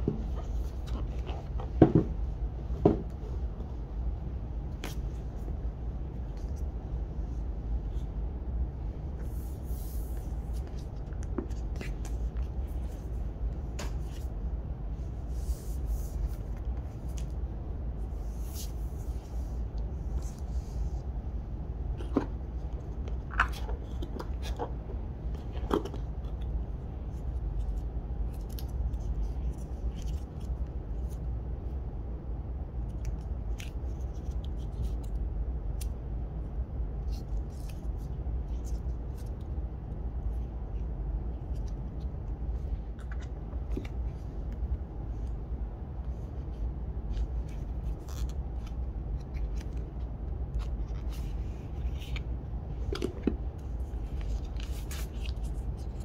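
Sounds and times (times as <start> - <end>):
steady low hum: 0.0 - 56.0
paper and cardboard rustling: 50.6 - 56.0.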